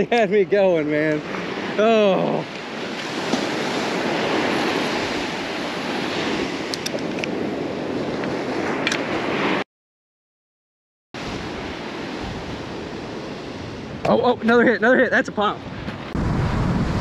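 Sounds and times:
surf breaking on beach: 0.0 - 6.8, 11.2 - 14.8, 15.4 - 17.0.

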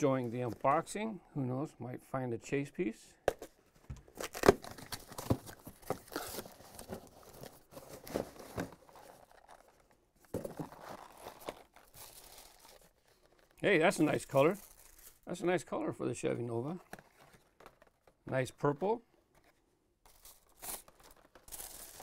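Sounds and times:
tape and cardboard tearing: 4.2 - 6.6
packaged toys rustling: 4.2 - 15.2, 20.1 - 22.0
tissue paper crinkling: 10.7 - 15.2, 20.1 - 22.0.

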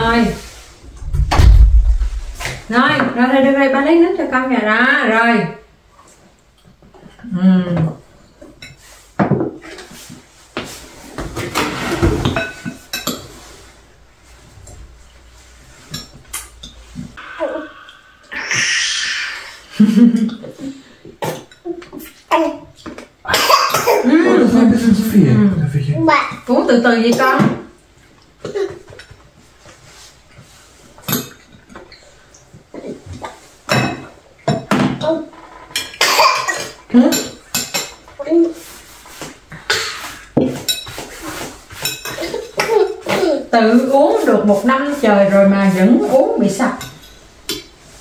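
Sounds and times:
utensils clinking against bowls: 33.0 - 38.2, 40.4 - 45.4.

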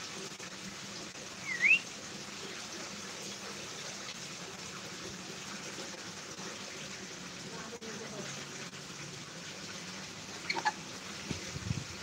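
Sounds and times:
parrot whistle: 1.4 - 1.9.

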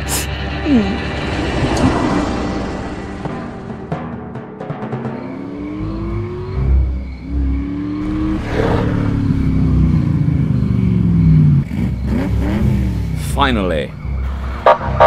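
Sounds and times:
car engine revving: 4.8 - 15.0.

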